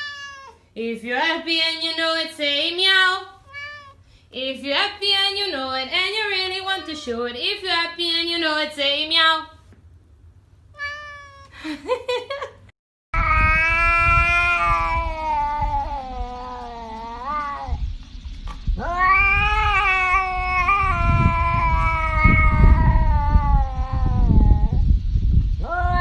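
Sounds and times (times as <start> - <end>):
cat yowling: 0.0 - 0.6, 3.4 - 4.0, 10.8 - 11.6, 13.2 - 17.8, 18.8 - 24.8, 25.6 - 26.0
low rumble: 13.2 - 26.0.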